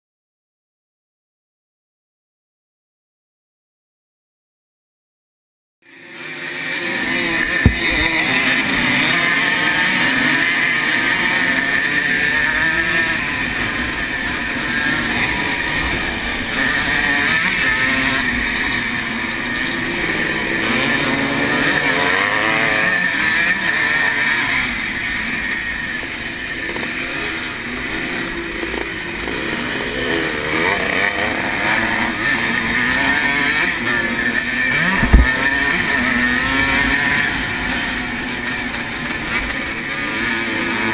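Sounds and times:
other motocross bikes running: 5.9 - 40.9
two-stroke motorcycle engine revving: 5.9 - 40.9
sharp knock: 7.6 - 8.1, 35.0 - 35.3.

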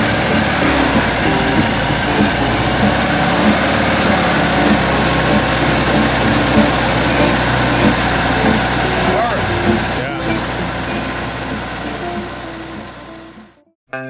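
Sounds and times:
air-cooled engine idling: 0.0 - 13.6.

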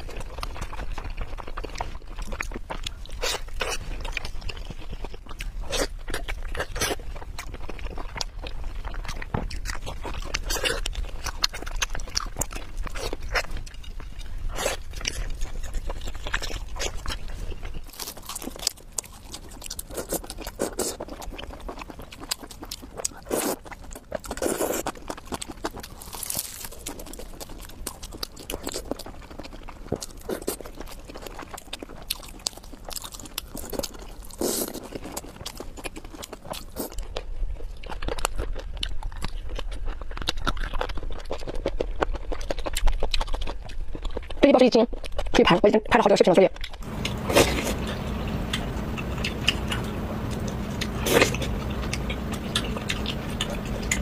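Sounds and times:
person chewing and crunching food: 0.0 - 54.0.

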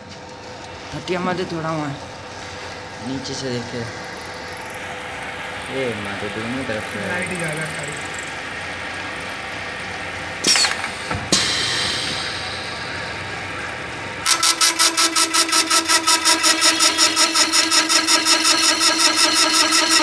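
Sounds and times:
steady machine whine: 0.0 - 20.0
cutting and drilling machine running: 2.8 - 20.0
machine clatter: 5.6 - 20.0.

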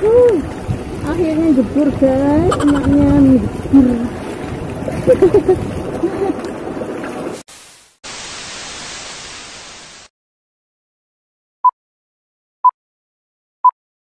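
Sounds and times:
hissing tv static: 7.5 - 10.1.

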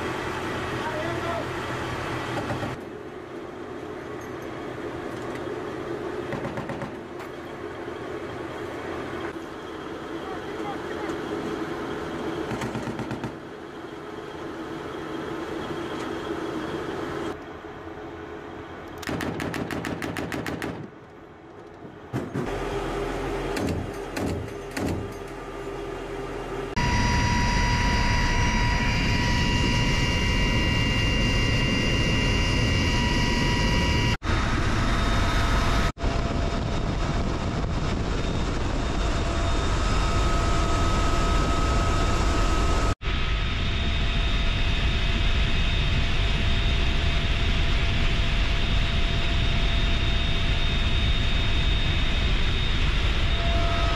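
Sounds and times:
high turbine whine: 0.0 - 19.6, 20.9 - 53.9
helicopter roar from cabin: 0.0 - 20.9, 21.8 - 53.9
sharp cracks: 19.0 - 21.2.

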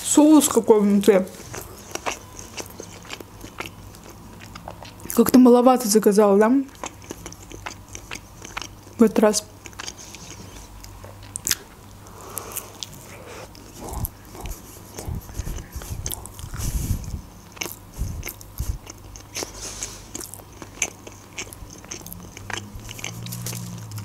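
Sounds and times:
close chewing with wet mouth clicks: 1.3 - 24.0.

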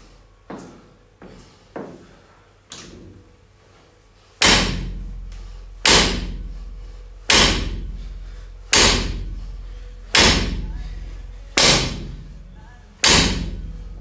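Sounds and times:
barbell thudding on platform: 13.0 - 13.7.

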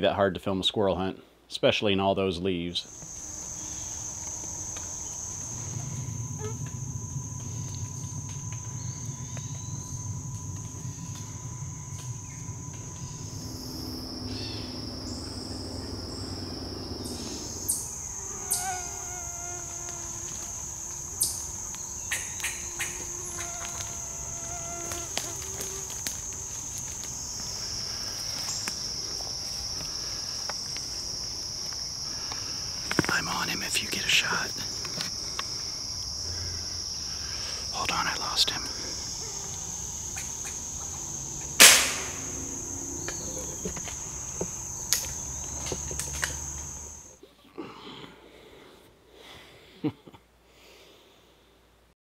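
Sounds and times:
insects droning: 0.0 - 52.0
low rumble: 4.8 - 18.2.

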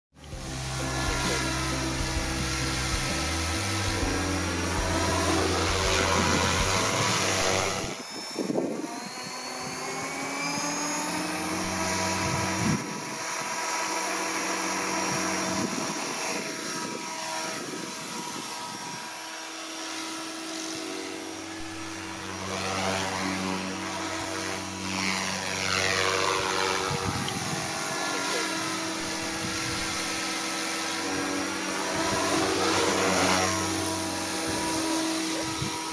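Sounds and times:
rc helicopter motor whine: 0.2 - 35.9.

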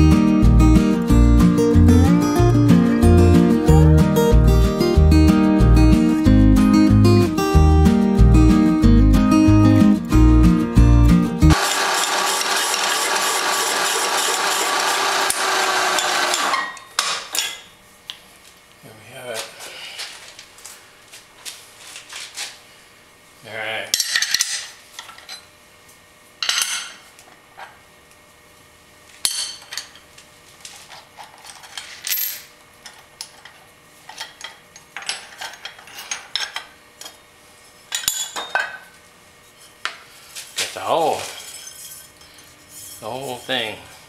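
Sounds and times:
hole saw grinding metal: 11.5 - 16.8.

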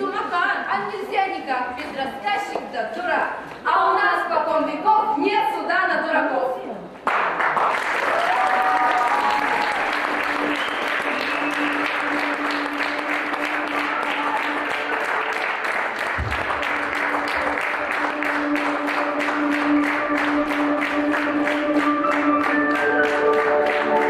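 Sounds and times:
audience applauding: 7.0 - 24.0
music with long held note: 9.8 - 24.0.

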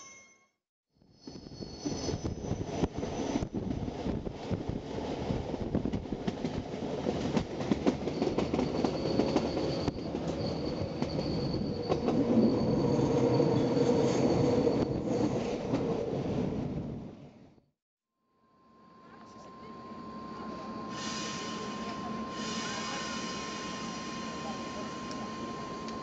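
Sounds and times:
high wheel squeal: 1.2 - 3.4, 8.1 - 15.5
train wheels rumbling on rails: 1.4 - 17.0.

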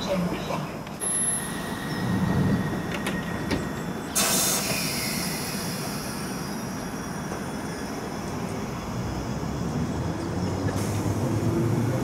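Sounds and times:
train low hum: 0.0 - 12.0
air brakes hissing: 1.0 - 8.0, 10.7 - 11.2.

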